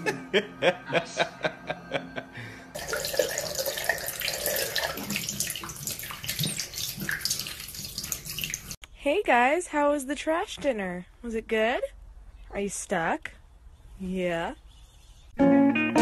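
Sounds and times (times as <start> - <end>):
tap water pouring: 2.8 - 8.8.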